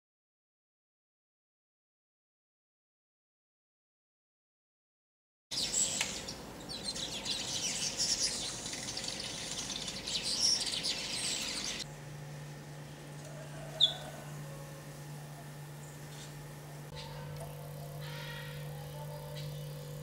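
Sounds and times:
weaver birds chattering: 5.5s - 11.8s, 16.9s - 19.8s
low steady hum: 5.5s - 20.0s.

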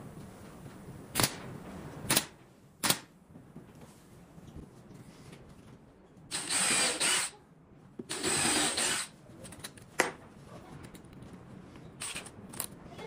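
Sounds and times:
cordless drill into plywood: 6.3s - 7.4s, 8.1s - 9.1s.

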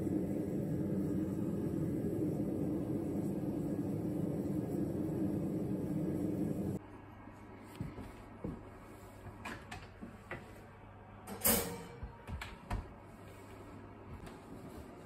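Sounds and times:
steady rushing noise: 0.0s - 6.8s
oven door and racks clinking: 11.2s - 12.4s.

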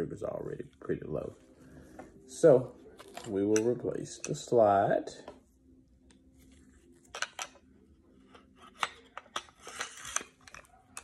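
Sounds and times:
metal slide scraping: 9.4s - 10.6s.

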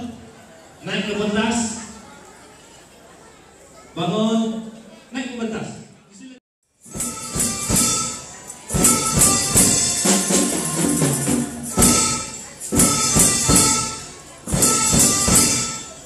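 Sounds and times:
bright high percussion strokes: 6.8s - 16.0s
music with steady beat: 6.8s - 16.0s.

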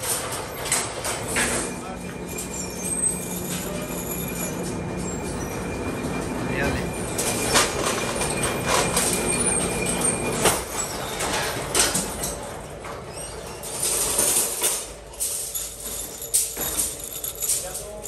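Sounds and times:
machine hum: 0.2s - 11.7s
steel rods clinking together: 14.2s - 18.0s.

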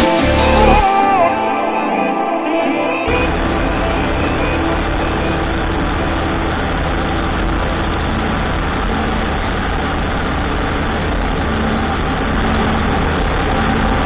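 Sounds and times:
airplane engine and propeller: 3.1s - 14.0s.

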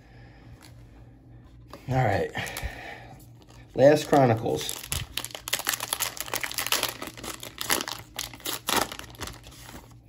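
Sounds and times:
wrapper tearing and crinkling: 3.9s - 10.0s.

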